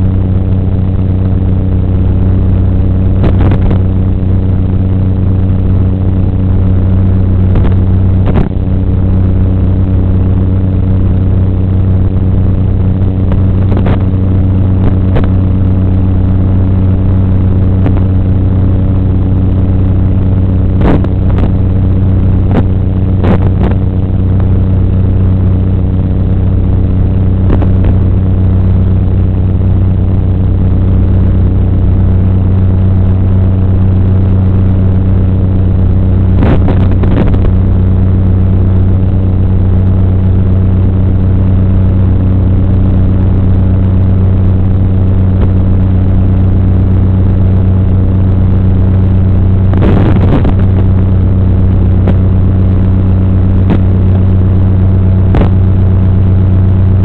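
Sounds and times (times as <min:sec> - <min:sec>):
loud electrical buzz: 0:00.0 - 0:57.0
static crackles: 0:00.0 - 0:57.0.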